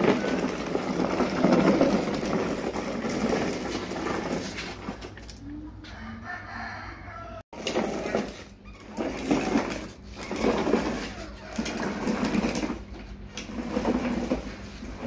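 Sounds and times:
rough rumbling noise: 0.0s - 5.8s, 7.6s - 15.0s
rooster crowing: 5.9s - 7.5s, 10.9s - 12.3s.

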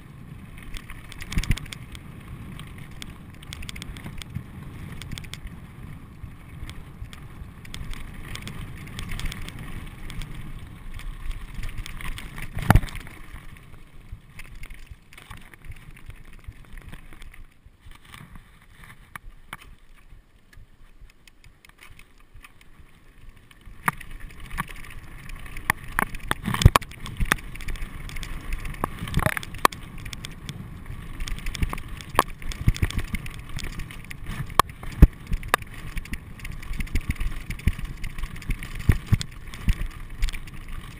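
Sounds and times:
bike knocking and rattling on rocks: 0.0s - 40.9s
bike tyres crunching on gravel: 0.0s - 40.9s.

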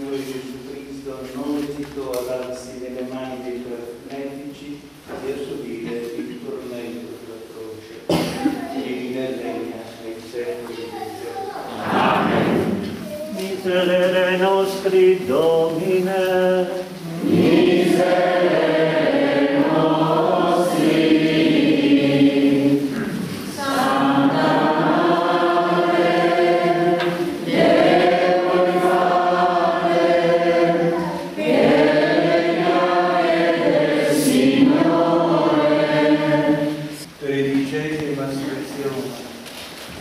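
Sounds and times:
congregation singing a hymn: 11.7s - 39.3s.

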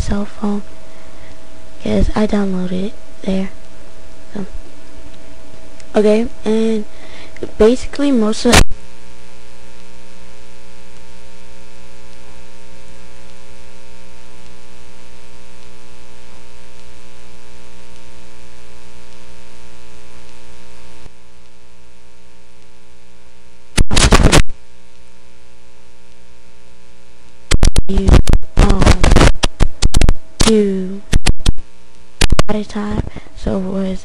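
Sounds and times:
electrical mains hum: 0.0s - 34.0s
loud noise burst: 23.7s - 24.6s, 27.5s - 32.5s.

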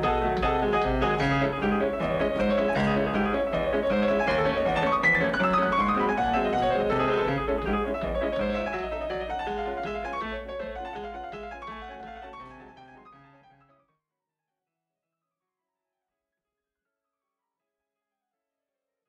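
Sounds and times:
background piano music: 0.0s - 13.7s.

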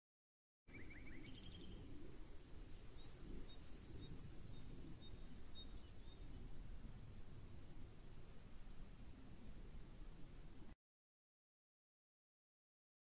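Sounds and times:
small birds chirping: 0.7s - 9.8s
wind rumble on microphone: 0.7s - 10.8s.

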